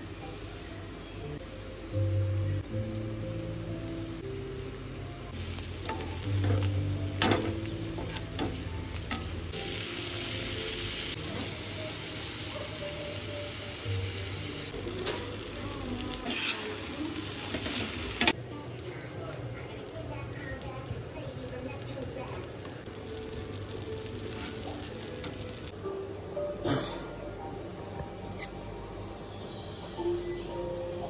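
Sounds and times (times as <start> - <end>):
food sizzling in oil: 2.5 - 25.8
spatula scraping metal pan: 16.2 - 16.7.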